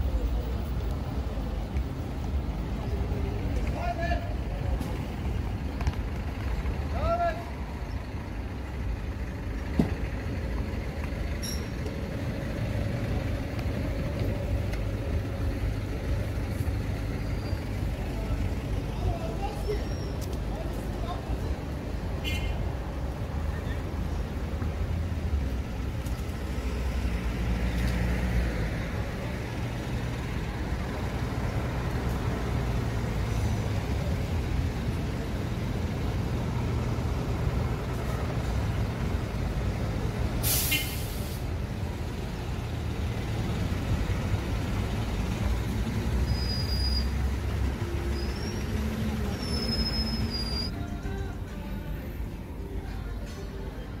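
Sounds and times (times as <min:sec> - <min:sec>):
large vehicle engine rumbling: 0:00.0 - 0:54.0
air brake hiss: 0:40.4 - 0:41.5.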